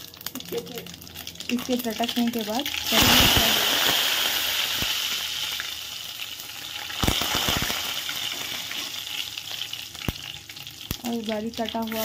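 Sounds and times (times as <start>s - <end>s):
leaves sizzling in hot oil: 0.0s - 12.0s
sharp crackling pops: 2.8s - 5.2s, 6.9s - 8.9s, 9.9s - 11.1s.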